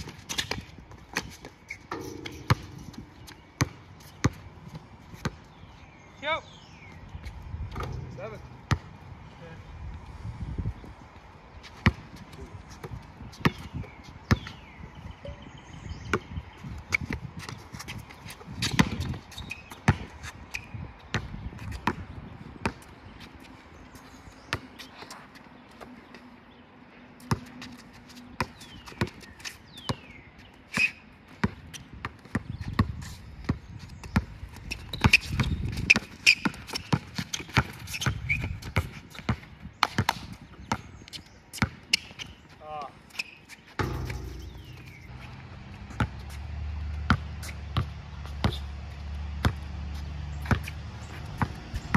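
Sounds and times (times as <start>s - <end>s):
basketball bouncing on court: 1.9s - 5.4s, 7.7s - 9.0s, 12.8s - 13.7s, 18.6s - 20.1s, 21.1s - 22.0s, 31.4s - 40.8s, 41.6s - 42.2s, 43.8s - 51.8s.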